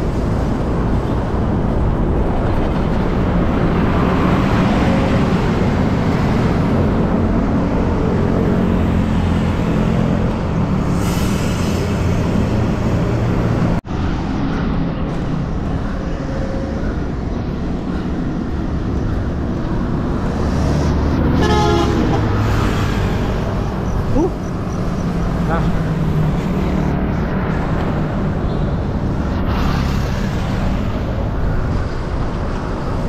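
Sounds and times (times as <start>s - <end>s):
traffic rumble: 0.0s - 33.0s
wind: 0.0s - 33.0s
pulsing horn honk: 21.3s - 22.4s.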